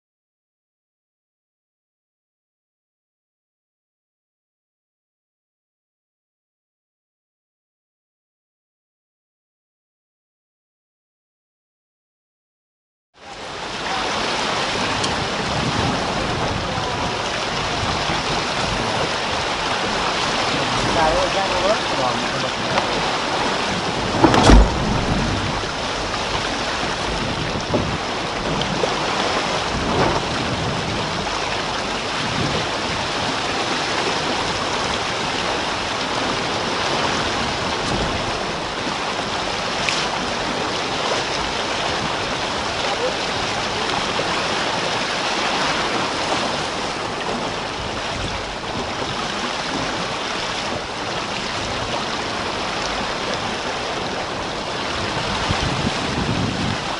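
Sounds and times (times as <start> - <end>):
water rushing along hull: 13.2 - 56.9
low thump: 24.0 - 27.9.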